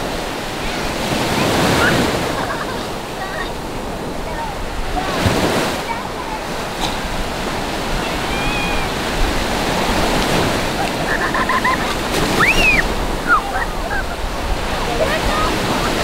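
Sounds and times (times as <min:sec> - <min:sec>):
surf breaking on shore: 0:00.0 - 0:16.0
high-pitched cries: 0:08.1 - 0:09.0, 0:12.4 - 0:14.2.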